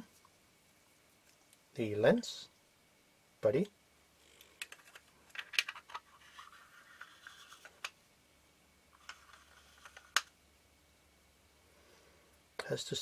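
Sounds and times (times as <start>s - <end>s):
soft scraping and rubbing: 5.9s - 7.9s, 9.0s - 10.2s.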